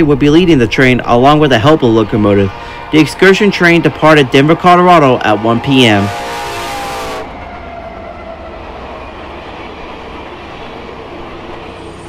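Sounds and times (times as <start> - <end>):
train rumbling past: 0.0 - 12.0
locomotive air horn: 2.0 - 7.4.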